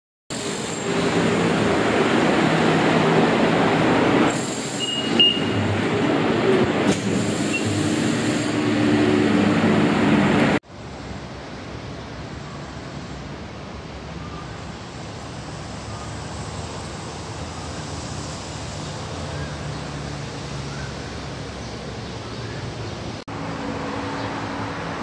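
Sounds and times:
outdoor background noise: 0.3 - 25.0
train rumbling: 0.3 - 25.0
short high electronic beep: 4.8 - 5.6.

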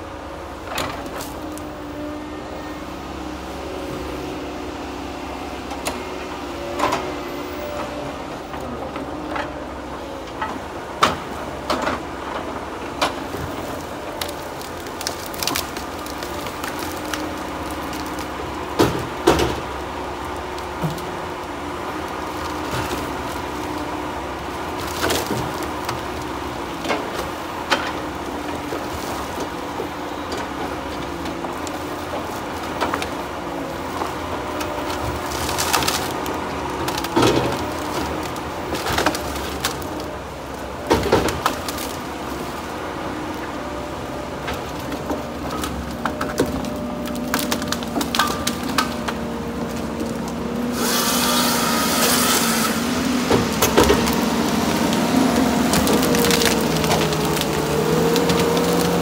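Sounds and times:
loader running under hydraulic load: 0.0 - 59.0
logs knocking together: 44.4 - 59.0.

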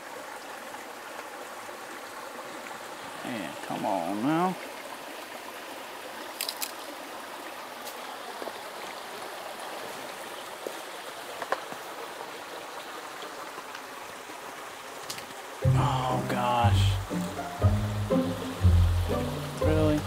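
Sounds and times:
mountain creek rushing: 0.0 - 20.0.

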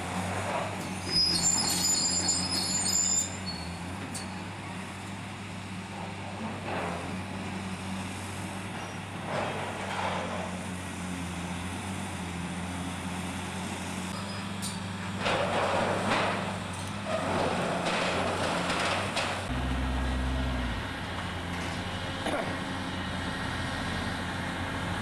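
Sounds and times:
diesel excavator engines humming: 0.0 - 25.0
high two-tone metallic screech: 1.0 - 4.3, 14.2 - 14.8.

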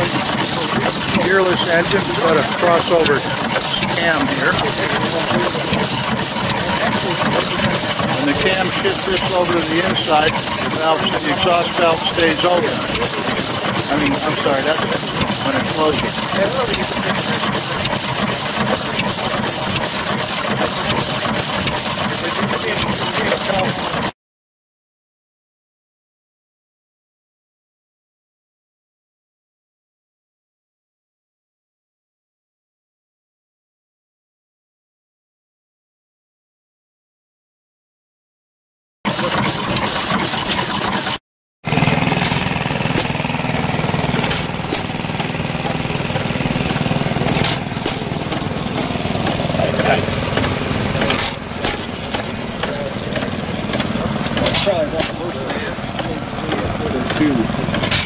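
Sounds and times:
small gas engine idling: 0.0 - 24.1, 39.1 - 58.0.

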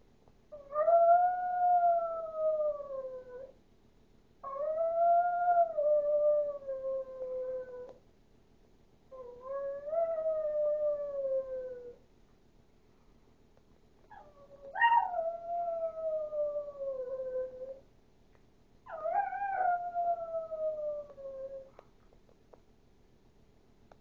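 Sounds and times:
dog howling: 0.6 - 3.5, 4.4 - 7.9, 9.2 - 12.0, 14.1 - 17.8, 18.9 - 21.7
dog yelping: 14.1 - 16.0.

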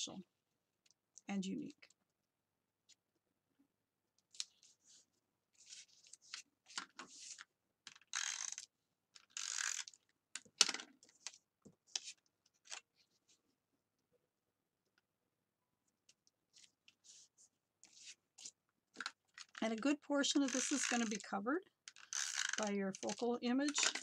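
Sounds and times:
paper rustling and sliding: 4.4 - 7.4.

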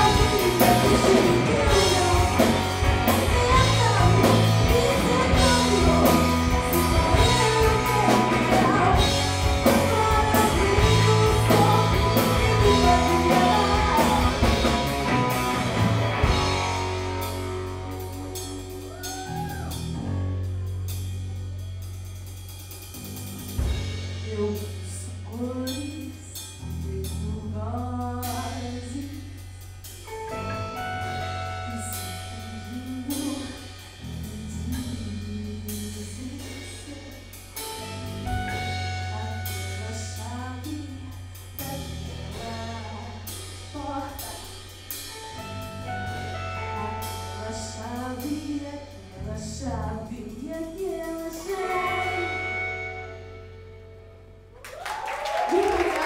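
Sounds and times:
woman singing: 0.0 - 15.6, 24.2 - 29.6, 30.4 - 44.6, 46.5 - 53.4
electric guitar: 0.0 - 21.6, 30.1 - 40.6, 50.8 - 56.0
drum kit with cymbals: 0.0 - 53.3
electric bass: 0.0 - 56.0.

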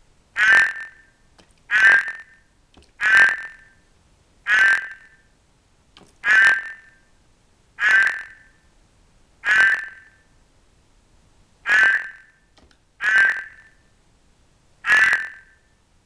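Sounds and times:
frog croaking: 0.3 - 3.8, 4.4 - 5.3, 6.2 - 7.1, 7.8 - 8.6, 9.4 - 10.3, 11.6 - 13.9, 14.8 - 15.7.

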